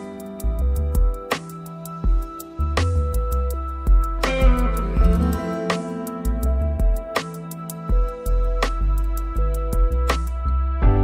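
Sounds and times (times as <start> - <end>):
gentle instrumental music: 0.0 - 11.0
light ticking beat: 0.0 - 11.0
deep bass: 2.6 - 5.6, 6.2 - 7.2, 7.9 - 11.0.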